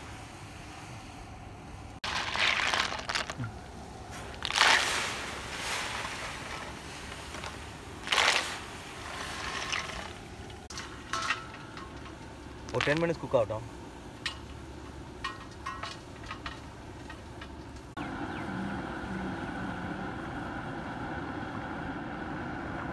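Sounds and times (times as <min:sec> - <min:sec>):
steady low hum: 0:00.0 - 0:22.9
snail shells clattering: 0:02.0 - 0:05.0, 0:06.0 - 0:13.2
water splashing: 0:02.0 - 0:13.2.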